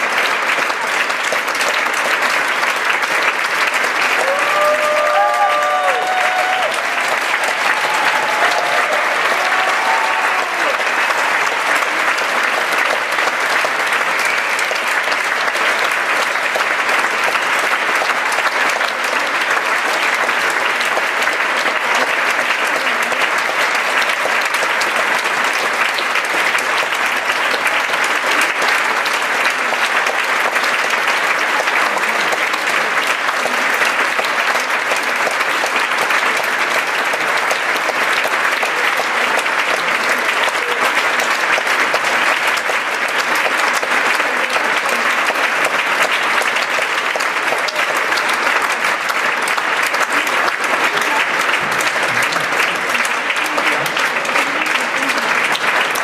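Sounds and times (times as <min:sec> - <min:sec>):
audience applauding: 0:00.0 - 0:56.0.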